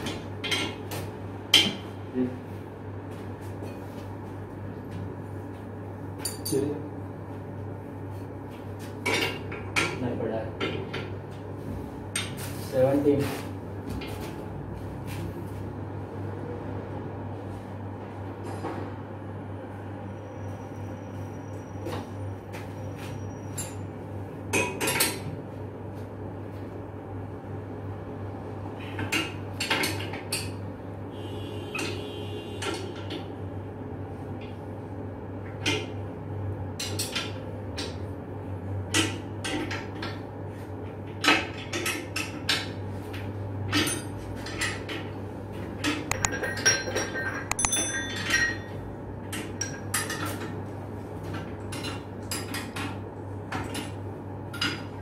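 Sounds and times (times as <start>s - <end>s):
hand tool clinking on steel pipe: 46.1s - 48.8s
metallic ringing: 46.1s - 48.9s.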